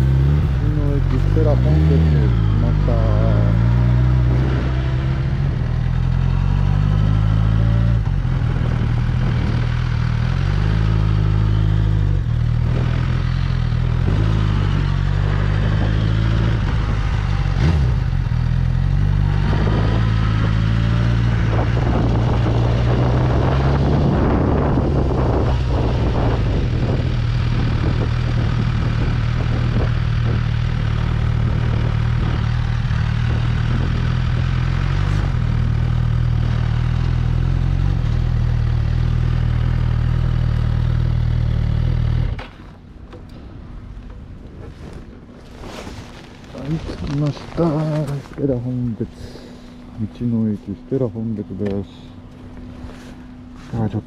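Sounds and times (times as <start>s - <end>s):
motorcycle engine running: 0.0s - 43.2s.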